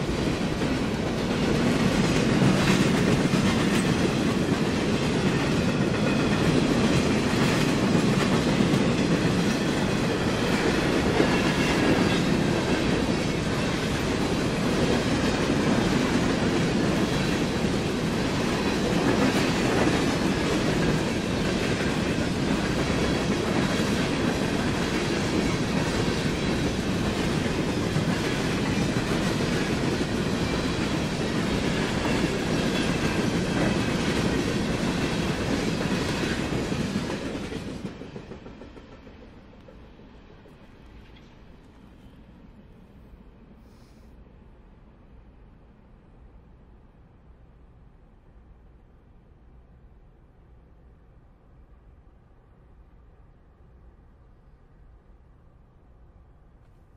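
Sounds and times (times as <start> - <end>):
freight train rolling past: 0.0 - 43.6.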